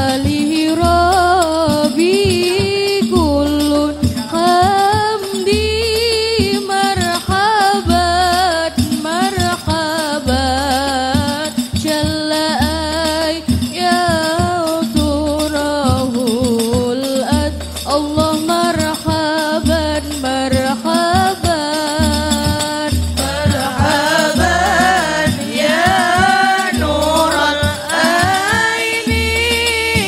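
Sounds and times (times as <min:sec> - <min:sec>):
girl singing into a microphone: 0:00.0 - 0:27.1, 0:27.7 - 0:30.0
frame-drum ensemble: 0:00.0 - 0:30.0
deep low drum beat: 0:21.4 - 0:30.0.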